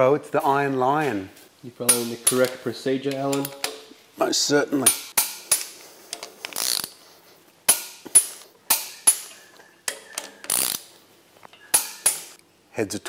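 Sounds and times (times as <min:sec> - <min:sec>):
torque wrench clicks: 0:10.4 - 0:10.9.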